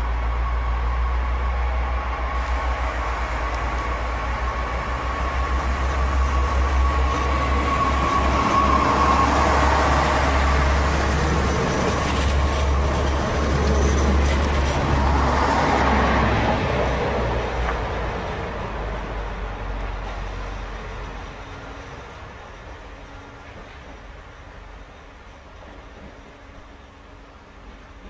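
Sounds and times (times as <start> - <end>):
high train whine: 0.0 - 28.0
train wheels rumbling: 0.0 - 28.0
faint high squeals: 0.2 - 14.8.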